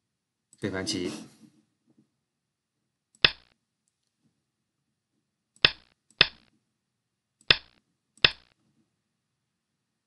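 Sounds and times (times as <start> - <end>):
sharp single clicks: 3.2 - 3.6, 5.6 - 6.5, 7.4 - 8.6.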